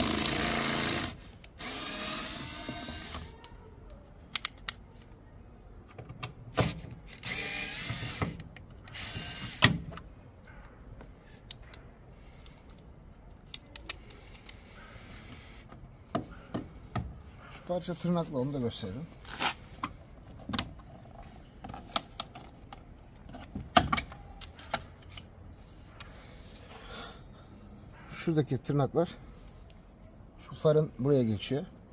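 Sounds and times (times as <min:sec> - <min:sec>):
drill clicks: 0:00.0 - 0:03.2, 0:07.2 - 0:09.8
cordless drill running: 0:00.0 - 0:03.3, 0:07.2 - 0:08.3, 0:08.9 - 0:09.6.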